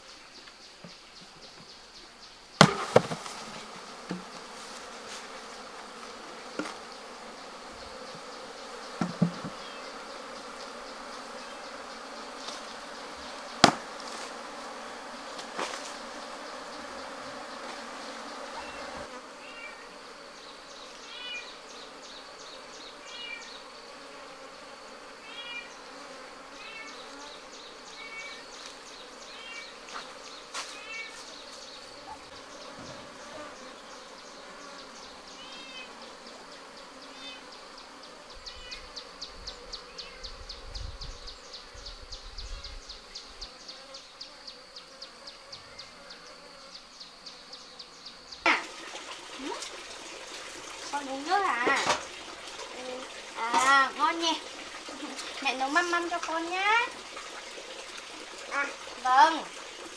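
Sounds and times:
bees buzzing: 0.0 - 59.9
high insect trill: 0.0 - 59.9
sharp knock: 13.6 - 13.8.

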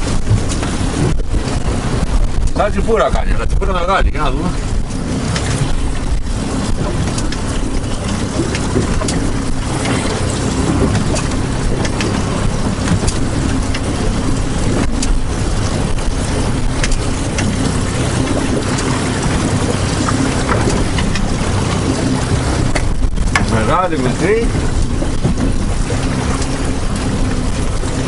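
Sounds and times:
strong wind: 0.0 - 28.0
water rushing around boat: 0.0 - 28.0
light clicks and knocks: 16.8 - 23.6.

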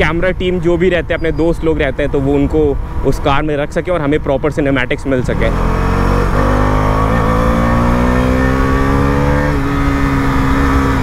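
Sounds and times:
motorcycle engine accelerating: 5.2 - 11.0.

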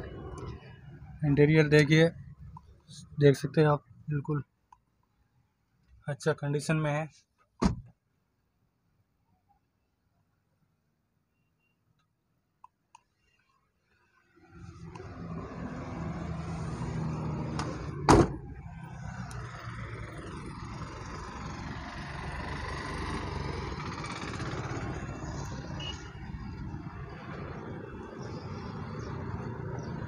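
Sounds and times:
outdoor vehicle rumble: 0.0 - 3.2, 13.8 - 30.0
car door slamming: 7.6 - 7.9, 17.6 - 18.4.

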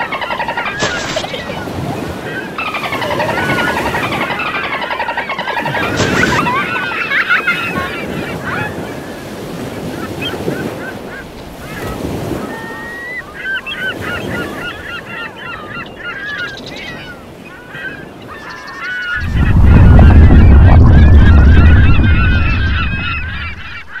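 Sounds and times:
flock of birds calling: 0.0 - 24.0
loud low rumble: 19.2 - 23.9
low rushing noise: 19.2 - 24.0.

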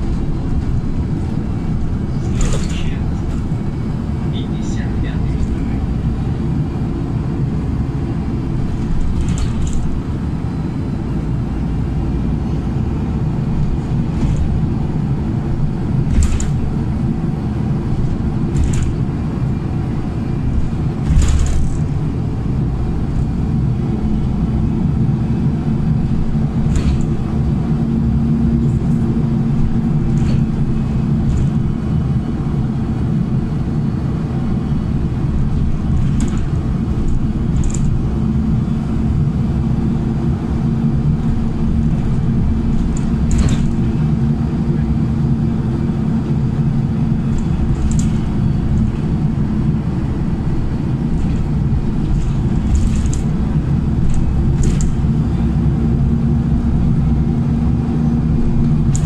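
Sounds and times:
bus engine and road rumble: 0.0 - 59.0
steady hum: 0.0 - 59.0
short sharp rattles: 2.2 - 3.5, 16.0 - 16.7.

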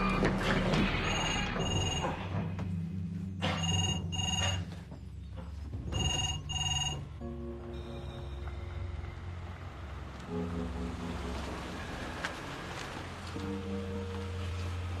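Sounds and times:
background music: 0.0 - 15.0
desk telephone ringing: 3.5 - 4.7, 5.9 - 7.2.

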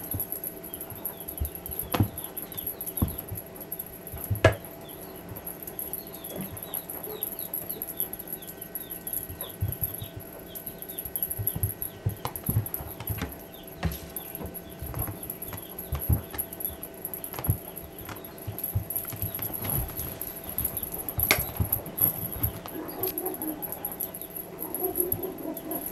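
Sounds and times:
kitten thumps and scuffs on carpet: 11.3 - 16.5, 17.3 - 22.7.

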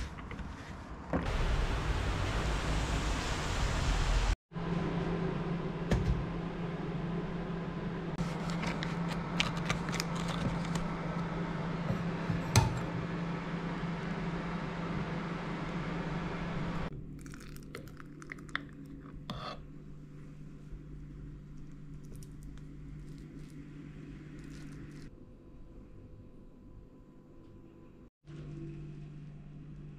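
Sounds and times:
butter packet crinkling: 8.3 - 10.8.

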